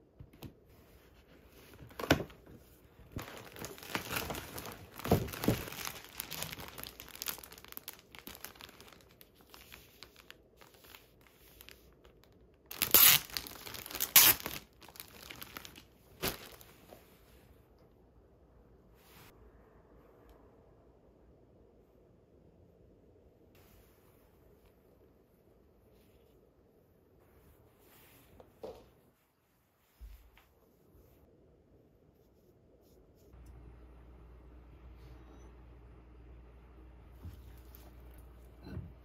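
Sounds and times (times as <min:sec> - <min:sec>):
plastic wrapping crinkling: 0:03.1 - 0:16.8.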